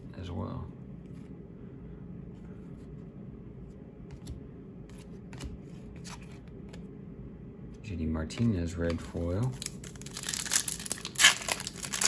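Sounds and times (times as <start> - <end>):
low steady hum: 0.0 - 12.0
trading cards flipped by hand: 4.1 - 6.9.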